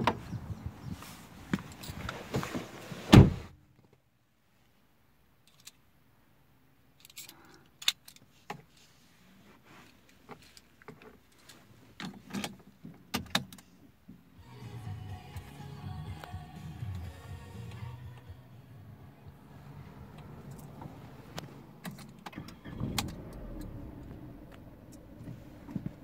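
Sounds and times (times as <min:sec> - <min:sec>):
car door thud: 0:03.1 - 0:03.5
low steady rumble: 0:14.9 - 0:26.0.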